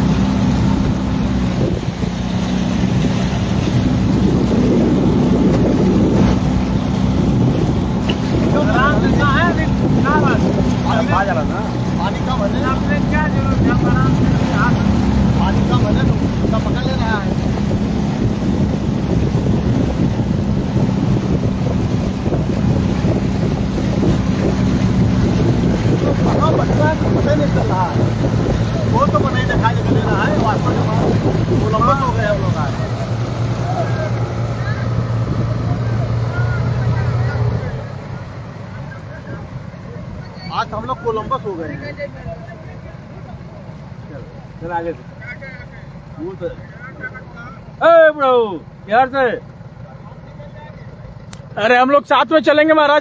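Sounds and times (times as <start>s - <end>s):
wind rushing over microphone: 0.0s - 38.3s
motorboat engine running: 0.0s - 53.0s.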